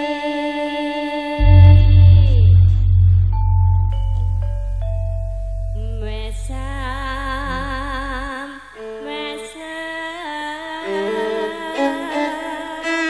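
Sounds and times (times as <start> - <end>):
woman singing with vibrato: 0.0 - 3.4, 5.8 - 13.0
ensemble holding tones: 1.3 - 9.1
deep low drone: 1.4 - 8.4.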